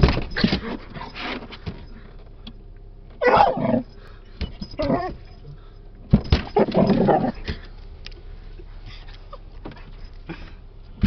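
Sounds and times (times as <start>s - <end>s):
dog growling and barking: 3.2s - 3.9s, 4.8s - 5.2s, 6.5s - 7.5s
windshield wipers moving: 3.2s - 10.2s.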